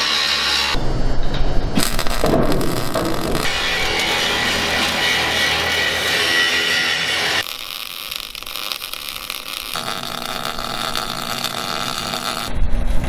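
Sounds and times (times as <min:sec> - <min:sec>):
welding arc crackling: 0:01.8 - 0:12.6
background music: 0:03.4 - 0:07.5.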